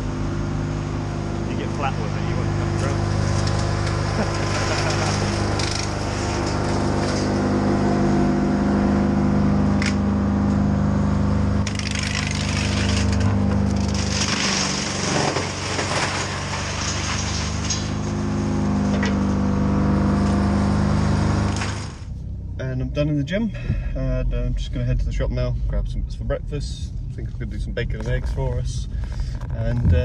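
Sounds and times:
engine running steadily: 0:00.0 - 0:30.0
crackling and snapping noise: 0:03.2 - 0:07.4, 0:11.6 - 0:18.1.

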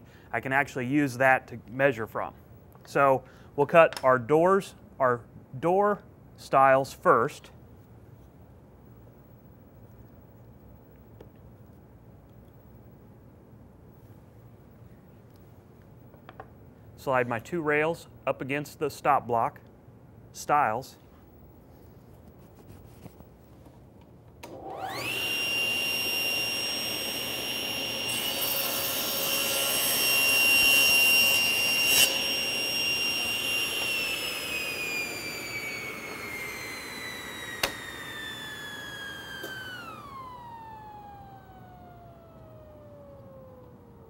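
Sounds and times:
table saw motor whine: 0:24.4 - 0:44.0
saw blade cutting boards: 0:24.8 - 0:40.3.

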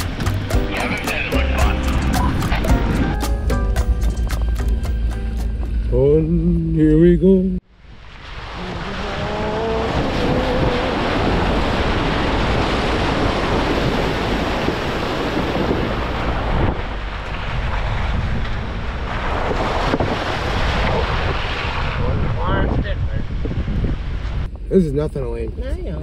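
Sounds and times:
car engine and tyre noise: 0:00.0 - 0:22.7
wind rushing over microphone: 0:07.8 - 0:26.0.

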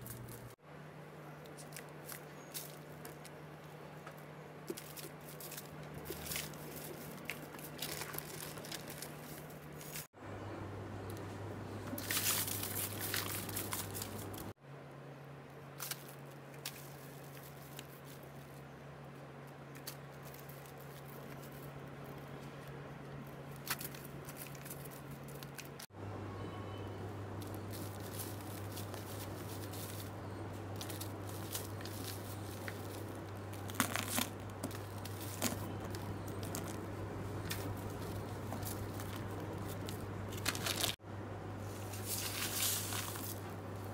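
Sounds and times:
steady low hum: 0:00.0 - 0:43.9
sand and cement crumbling: 0:01.6 - 0:10.2, 0:11.9 - 0:14.6, 0:27.4 - 0:41.0, 0:41.6 - 0:43.9.

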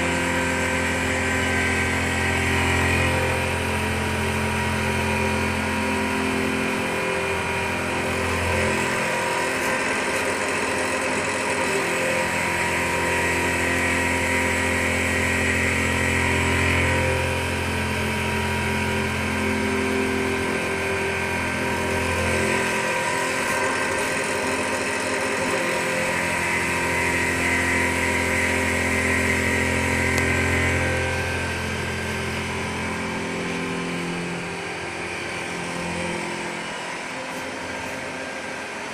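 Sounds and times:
machine hum: 0:00.0 - 0:38.9
milling tool cutting metal: 0:06.9 - 0:15.0, 0:20.6 - 0:31.5.

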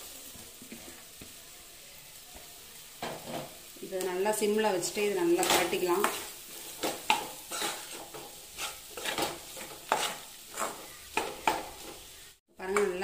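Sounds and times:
soft sizzle: 0:00.0 - 0:13.0
metal spatula scraping a pan: 0:04.8 - 0:13.0.

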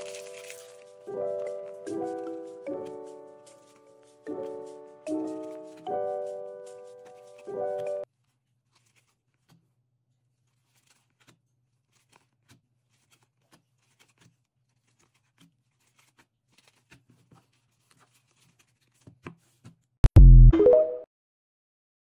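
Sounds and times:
trading cards clicking and rustling: 0:00.0 - 0:08.0, 0:10.5 - 0:19.8.

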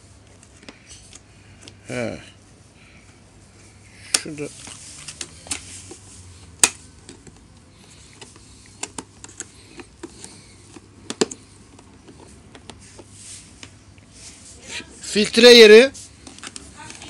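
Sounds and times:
sharp plastic clicks and taps: 0:06.6 - 0:11.9.

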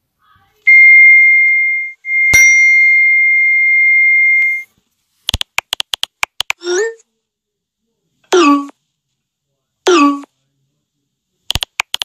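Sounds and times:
sharp click: 0:05.3 - 0:06.6, 0:11.5 - 0:12.0.

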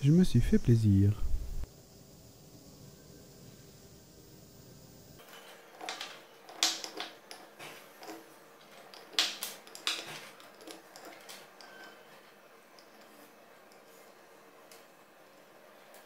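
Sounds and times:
drill bits clinking into wood: 0:05.2 - 0:13.9.

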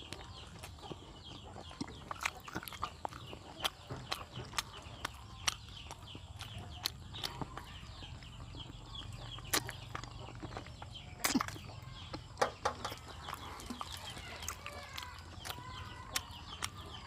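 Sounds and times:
chewing: 0:00.0 - 0:17.0
wet lip smacks: 0:11.2 - 0:11.6.

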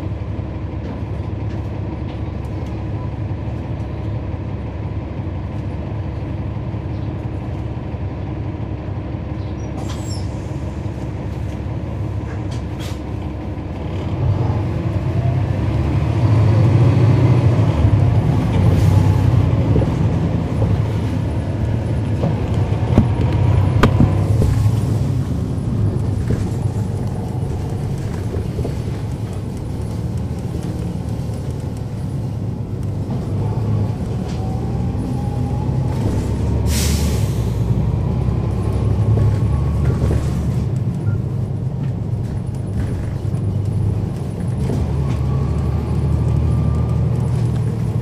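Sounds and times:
bus diesel engine drone: 0:00.0 - 0:48.0
air brake hiss: 0:36.6 - 0:37.7.

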